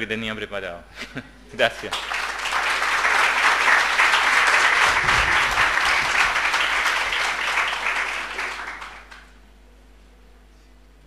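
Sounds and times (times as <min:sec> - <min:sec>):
audience applauding: 0:01.8 - 0:09.4.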